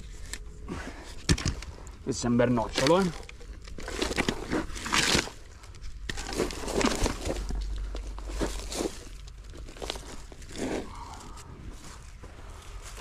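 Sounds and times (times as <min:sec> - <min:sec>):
footsteps crunching on dry leaves: 0:06.2 - 0:13.0.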